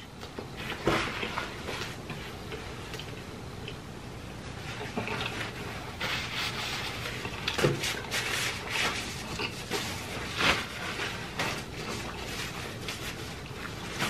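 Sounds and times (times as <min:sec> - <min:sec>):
paper napkin rustling: 0:04.5 - 0:14.0.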